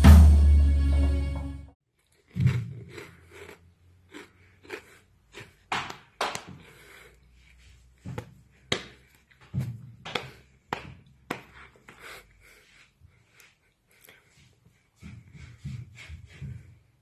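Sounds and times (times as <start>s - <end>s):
feet stamping on tile floor: 5.6s - 7.1s, 7.8s - 17.0s.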